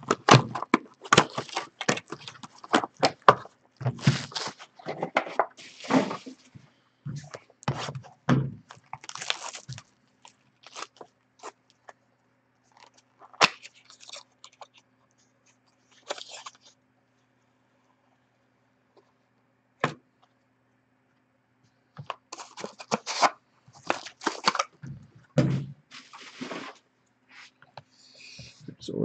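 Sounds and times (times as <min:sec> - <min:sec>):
plastic wrap crinkling: 0:00.0 - 0:04.9, 0:07.2 - 0:11.9, 0:12.7 - 0:14.8, 0:15.9 - 0:16.8, 0:22.0 - 0:24.8
cards and boxes clicking: 0:00.0 - 0:05.4, 0:22.0 - 0:24.8.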